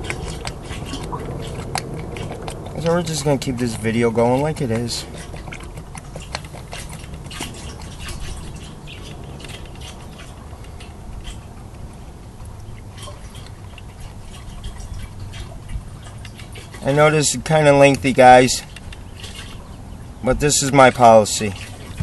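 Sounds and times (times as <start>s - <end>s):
fuel pouring into a tank: 0.0s - 11.1s
low steady hum: 0.0s - 22.0s
small splashes and drips: 0.0s - 22.0s.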